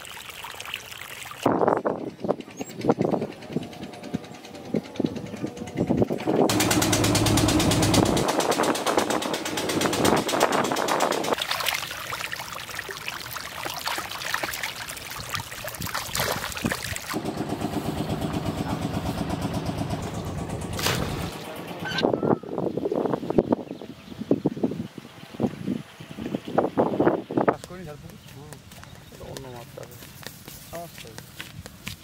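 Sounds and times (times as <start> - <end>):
small boat engine chugging: 1.8 - 11.4, 17.2 - 22.1
fish splashing at water surface: 11.2 - 17.2, 20.8 - 21.4.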